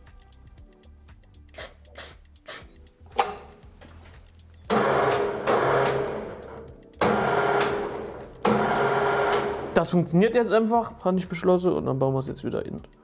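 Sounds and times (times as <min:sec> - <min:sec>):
loud background music: 0:00.0 - 0:11.6
aerosol spray can hiss: 0:01.5 - 0:02.8.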